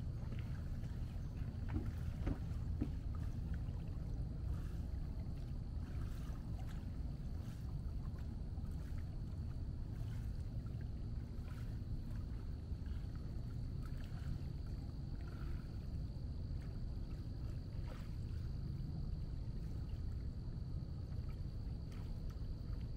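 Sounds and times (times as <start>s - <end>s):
steady low rumble: 0.0s - 22.9s.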